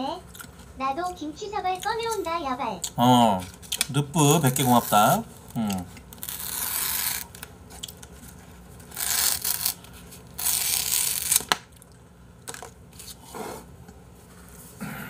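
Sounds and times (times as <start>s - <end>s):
plastic wrap tearing and crackling: 6.1s - 8.0s, 8.9s - 11.9s.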